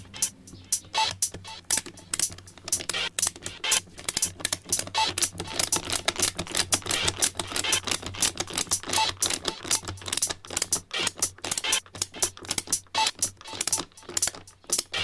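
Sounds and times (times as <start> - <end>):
rapid plastic clicking: 0.0 - 15.0.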